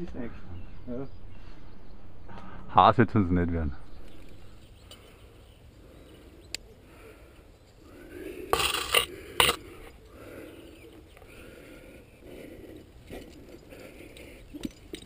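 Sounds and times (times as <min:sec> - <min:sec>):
scraping and rustling on rock: 0:08.4 - 0:10.0
loud scrapes: 0:08.5 - 0:09.6.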